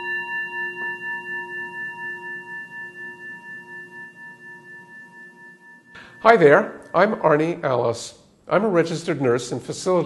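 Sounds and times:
meditation bell ringing: 0.0 - 8.0.

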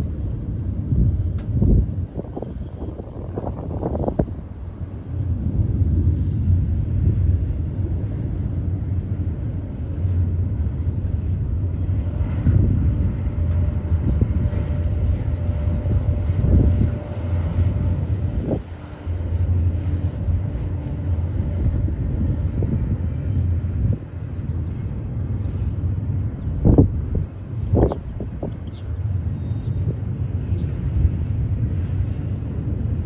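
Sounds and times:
freight train wheels rumbling: 0.0 - 33.0.

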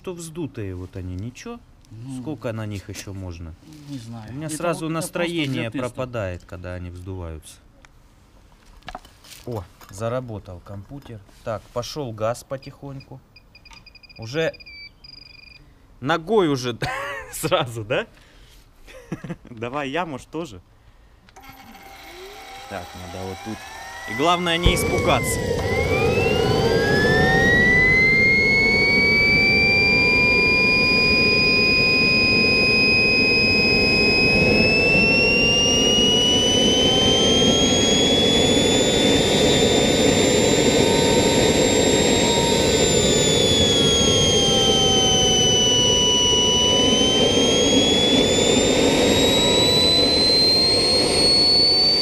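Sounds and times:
turbojet engine whine: 21.9 - 52.0
rushing jet exhaust: 24.1 - 52.0.

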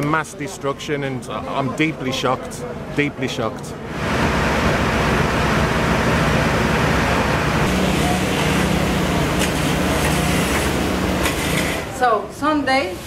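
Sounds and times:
truck engine running: 3.9 - 12.0.

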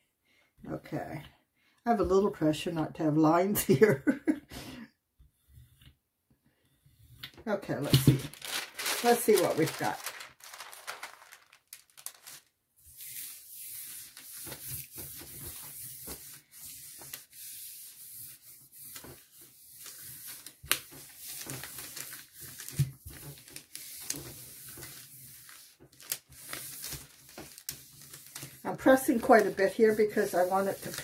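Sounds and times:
paper swishing under hand: 8.0 - 31.0.

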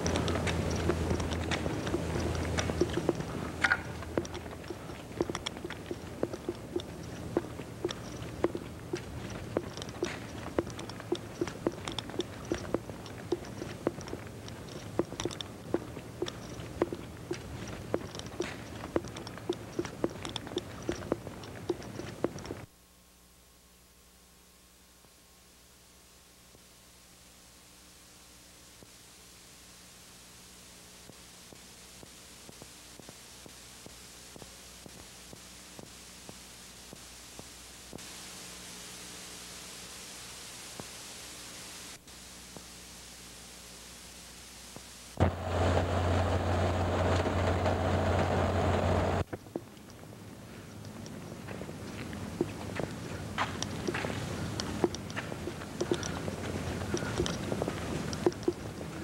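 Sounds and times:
sharp clicks and knocks: 0.0 - 22.7, 56.8 - 58.8
low steady hum: 0.0 - 59.0.

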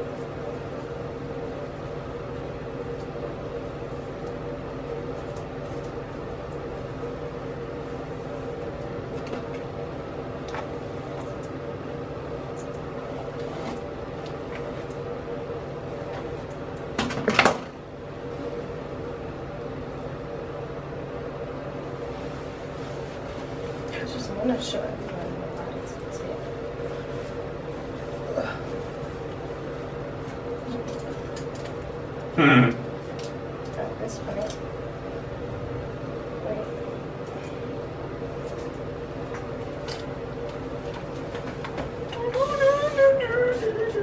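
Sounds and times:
ventilation fan humming: 0.0 - 44.0.

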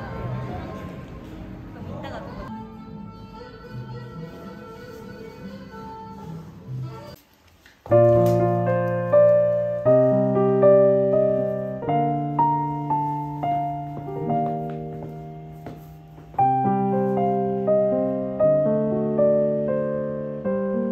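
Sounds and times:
gentle piano music: 7.9 - 20.9.

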